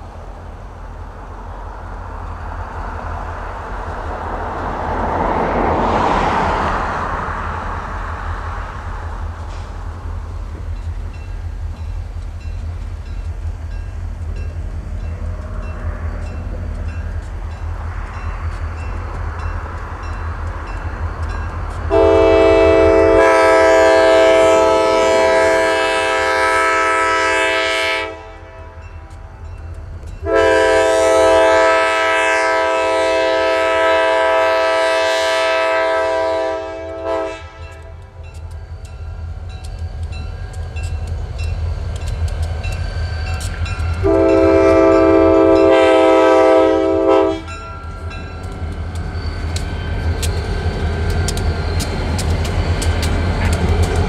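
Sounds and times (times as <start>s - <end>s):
passing train rumble: 0.0s - 54.0s
locomotive air horn blasts: 21.9s - 28.9s, 30.2s - 38.1s, 44.0s - 47.8s.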